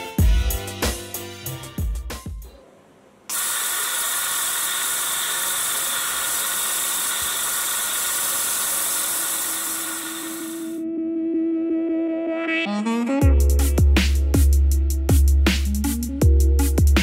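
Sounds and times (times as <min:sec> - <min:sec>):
coolant spraying hiss: 0:03.3 - 0:10.8
milling machine whining: 0:03.3 - 0:10.8.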